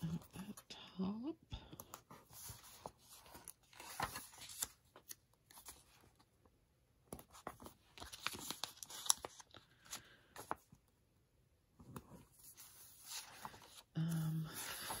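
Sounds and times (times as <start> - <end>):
paper pages rustling: 1.9 - 6.3, 7.0 - 10.8, 11.8 - 13.9, 14.5 - 15.0.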